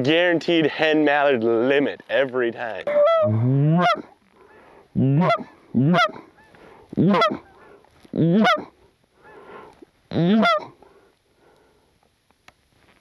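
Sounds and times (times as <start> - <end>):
goose call honks: 2.9 - 4.1, 5.0 - 7.5, 8.2 - 8.7, 10.1 - 10.8.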